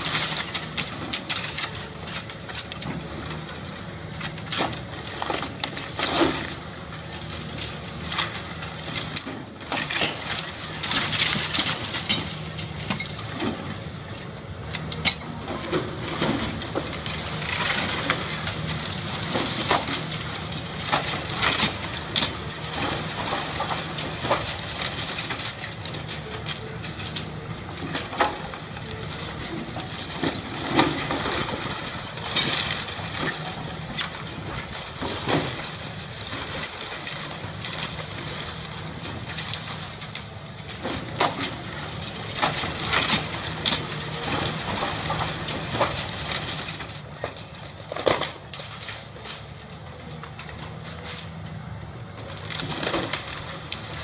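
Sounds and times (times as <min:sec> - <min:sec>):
excavator diesel engine running: 0:00.0 - 0:54.0
masonry and tiles breaking: 0:09.0 - 0:13.6, 0:40.8 - 0:49.4.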